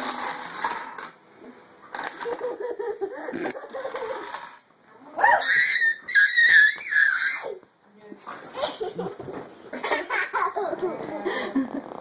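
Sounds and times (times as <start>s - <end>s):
dominoes toppling on wood: 0.0s - 1.2s, 3.9s - 4.6s
child squealing and laughing: 5.2s - 7.6s.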